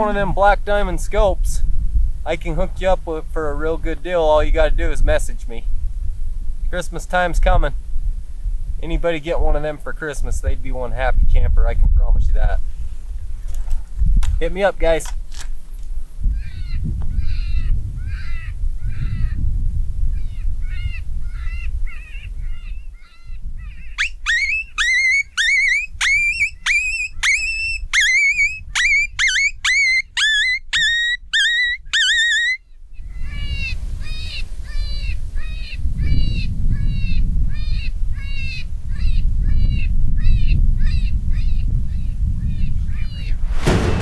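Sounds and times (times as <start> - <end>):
wind on microphone: 0.0 - 29.2, 32.9 - 44.0
shrill bird-like cries: 16.4 - 19.4, 20.1 - 43.4.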